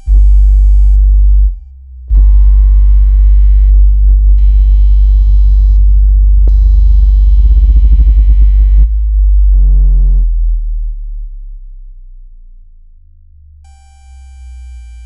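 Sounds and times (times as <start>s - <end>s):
deep bass tones: 0.0s - 15.0s
fast-pulsing buzzy tone: 2.2s - 9.8s.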